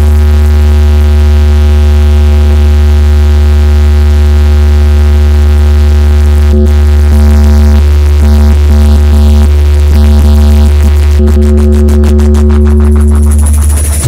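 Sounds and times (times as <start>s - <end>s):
loud electronic tone with bass: 0.0s - 14.0s.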